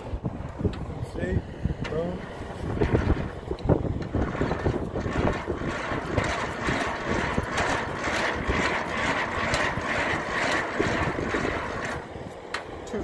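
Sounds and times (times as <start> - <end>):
hand crank gears clicking: 4.2 - 12.0.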